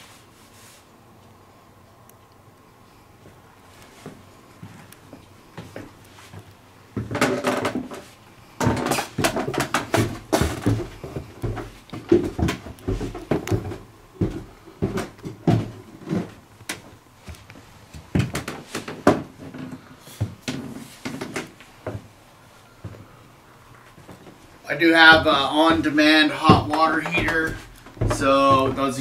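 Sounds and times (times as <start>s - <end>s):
knocks and thumps in a room: 7.0s - 22.1s, 24.0s - 29.0s.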